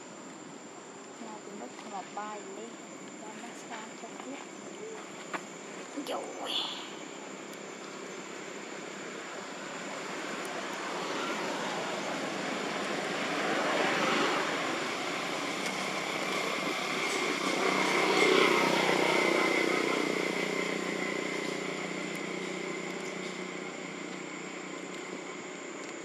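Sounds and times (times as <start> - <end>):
steady high whine: 0.0 - 26.0
distant engine: 8.0 - 25.8.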